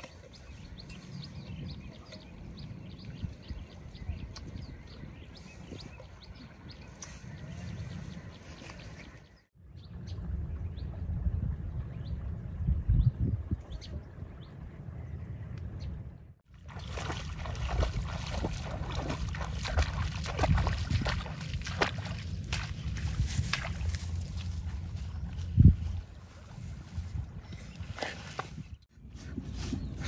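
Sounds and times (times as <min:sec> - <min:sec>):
feet splashing through water: 0:16.5 - 0:28.5.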